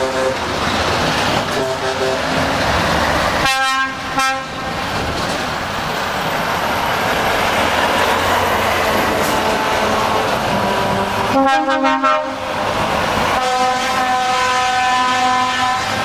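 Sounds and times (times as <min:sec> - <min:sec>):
truck air horn blasts: 0:00.0 - 0:00.4, 0:01.5 - 0:02.4, 0:03.4 - 0:04.7, 0:09.2 - 0:12.5, 0:13.4 - 0:16.0
diesel trucks driving past: 0:00.0 - 0:16.0.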